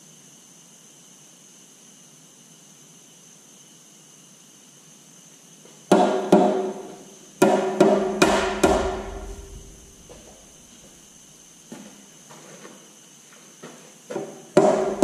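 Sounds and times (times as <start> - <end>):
metal-on-metal strikes: 6.0 - 10.5.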